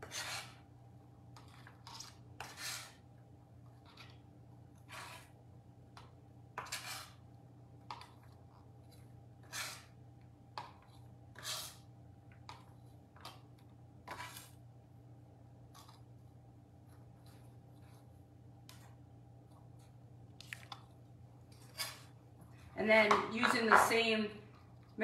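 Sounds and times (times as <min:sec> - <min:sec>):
blade scraping on cutting board: 0:00.0 - 0:00.6, 0:01.8 - 0:03.0, 0:04.9 - 0:05.3, 0:06.6 - 0:07.2, 0:09.4 - 0:09.9, 0:11.4 - 0:11.8, 0:14.1 - 0:14.6, 0:21.7 - 0:22.1.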